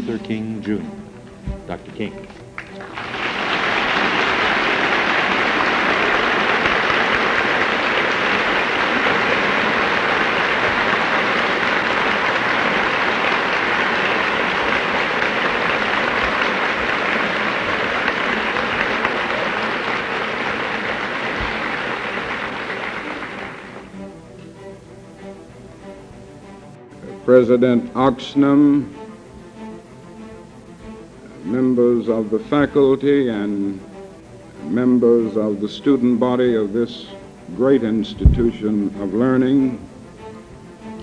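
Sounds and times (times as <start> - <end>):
audience applauding: 2.4 - 24.0.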